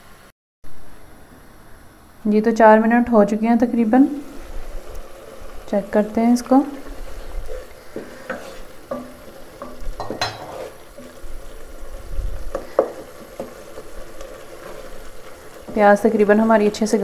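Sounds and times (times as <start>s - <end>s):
sauce sizzling: 3.1s - 17.0s
wooden spoon scraping a pot: 4.2s - 17.0s.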